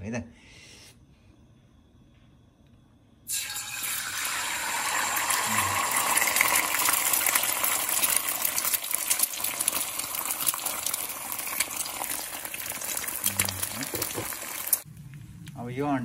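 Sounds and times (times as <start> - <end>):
eggs sizzling in hot oil: 3.3 - 14.9.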